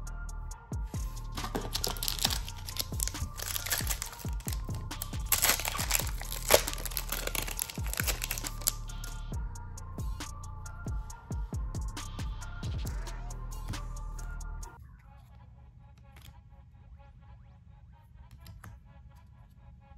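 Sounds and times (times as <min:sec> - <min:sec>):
background music with beat: 0:00.0 - 0:14.8
wrapper crinkling and tearing: 0:01.4 - 0:09.2.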